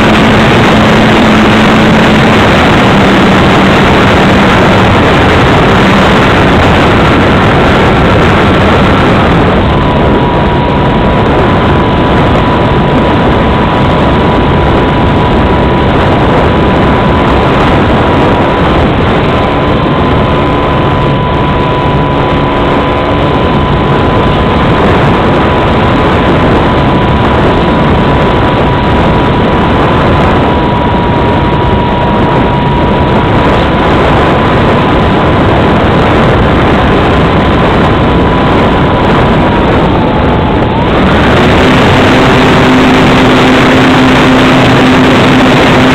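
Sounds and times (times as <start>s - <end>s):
model plane motor whine: 0.0s - 45.9s
wind rush: 0.0s - 45.9s.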